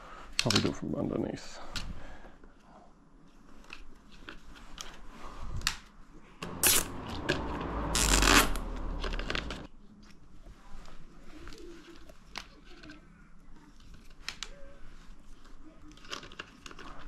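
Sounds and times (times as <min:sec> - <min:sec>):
plastic rattling and scraping: 0:08.7 - 0:09.7, 0:15.1 - 0:17.0
plastic parts clicking and knocking: 0:15.9 - 0:17.0.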